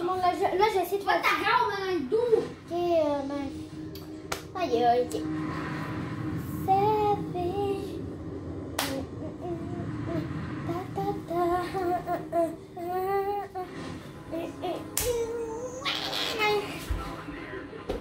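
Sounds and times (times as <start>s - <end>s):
girl singing: 6.4s - 8.1s, 8.8s - 16.7s.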